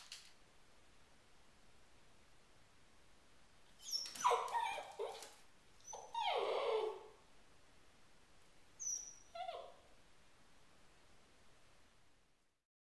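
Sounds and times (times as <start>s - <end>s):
puppy whining and yelping: 3.8s - 7.2s, 8.8s - 9.9s.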